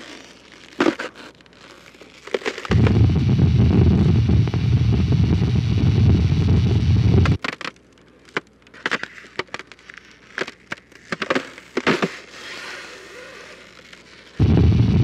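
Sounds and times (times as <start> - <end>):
sharp knocks and crackles: 2.2 - 12.2
loud low rumbling: 2.7 - 7.4, 14.4 - 15.0.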